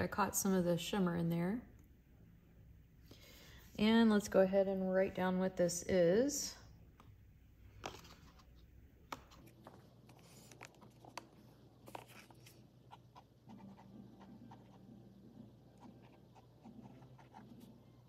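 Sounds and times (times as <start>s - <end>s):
pen scratching on paper: 11.9s - 15.0s, 15.7s - 17.8s.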